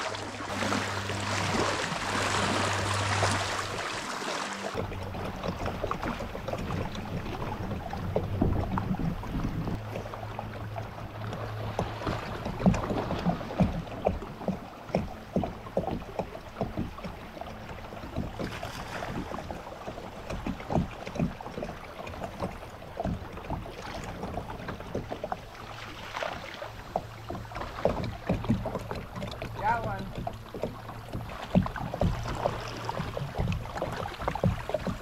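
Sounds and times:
fish splashing: 0:00.0 - 0:05.8
water slapping against kayak hull: 0:00.0 - 0:35.0.

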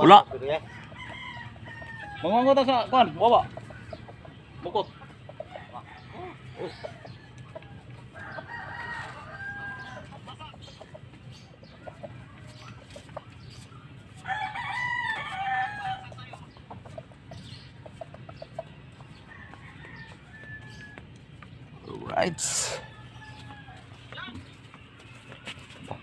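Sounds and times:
chickens clucking: 0:00.0 - 0:26.0
rooster crowing: 0:00.4 - 0:03.2, 0:05.4 - 0:10.1, 0:14.1 - 0:16.4, 0:18.9 - 0:21.1, 0:21.9 - 0:24.2.

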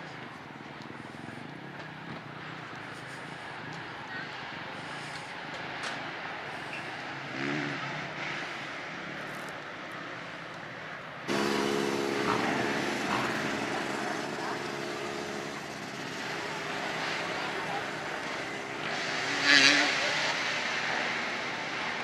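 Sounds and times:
outdoor background noise: 0:00.0 - 0:22.0
small engine running: 0:11.3 - 0:22.0.

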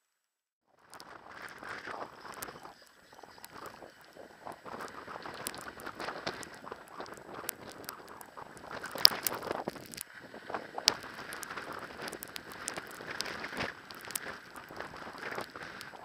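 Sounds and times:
sharp clicks and creaks: 0:00.8 - 0:16.0
skis scraping on snow: 0:01.0 - 0:16.0.

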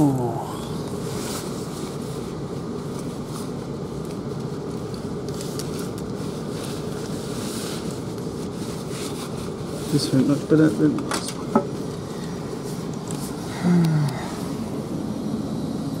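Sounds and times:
train carriage hum and rumble: 0:00.0 - 0:16.0.

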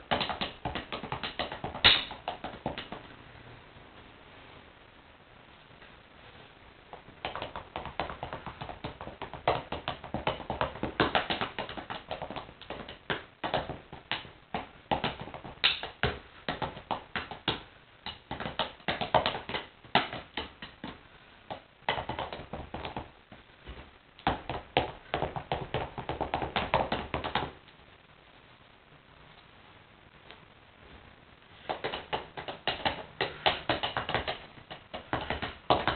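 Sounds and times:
drumsticks tapping on shoes: 0:00.0 - 0:03.1, 0:06.9 - 0:27.6, 0:31.6 - 0:35.9.

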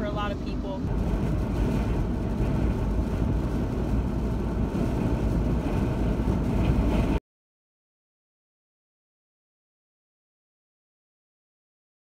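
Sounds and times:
tyres and wind rumble in car: 0:00.0 - 0:07.2.

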